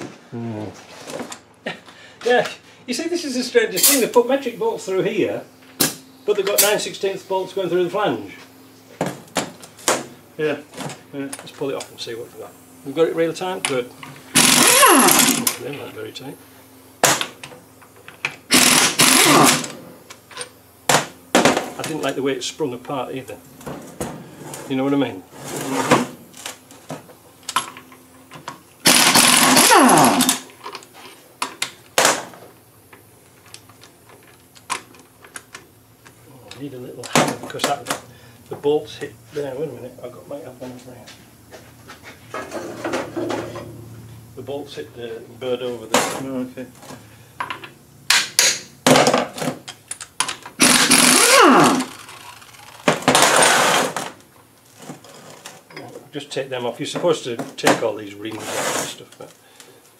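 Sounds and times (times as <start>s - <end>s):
air motor falling whine: 2.8s - 54.4s
pneumatic impact wrench rattling: 3.7s - 4.2s, 13.7s - 15.7s, 17.0s - 21.9s, 25.7s - 32.6s, 47.4s - 54.2s
air motor winding down whine: 11.9s - 16.4s, 18.5s - 19.9s, 28.8s - 30.6s, 50.6s - 52.6s.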